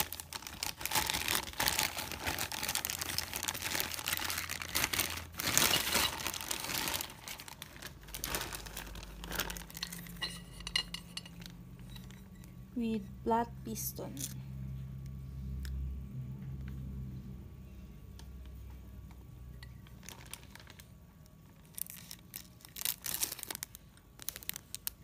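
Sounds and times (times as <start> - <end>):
plastic bag crinkling: 0.0 - 12.6, 19.6 - 25.0.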